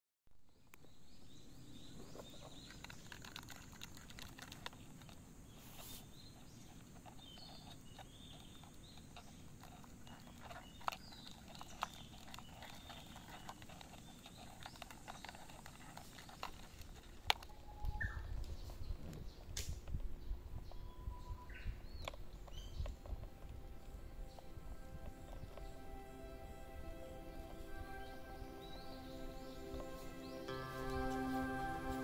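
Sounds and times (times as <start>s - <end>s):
beetle claws scratching on plastic: 2.0s - 17.7s
faint high chirps: 20.4s - 21.8s.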